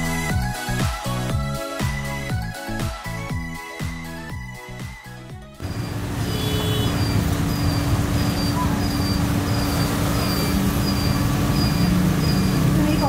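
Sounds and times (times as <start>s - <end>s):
intro music: 0.0s - 6.4s.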